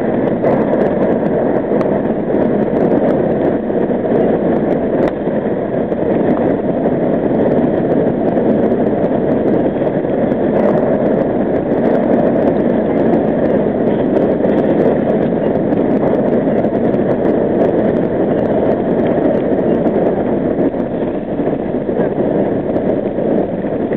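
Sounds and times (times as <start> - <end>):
subway train wheels rumbling on rails: 0.0 - 23.9.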